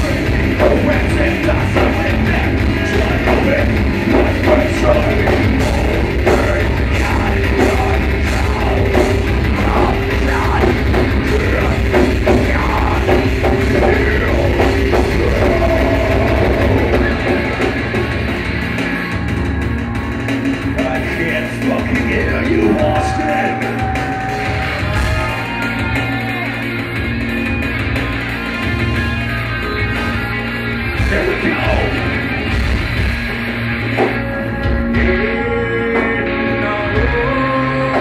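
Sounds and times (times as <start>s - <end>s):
bass guitar: 0.0s - 38.0s
drum kit: 0.0s - 38.0s
electric guitars: 0.0s - 38.0s.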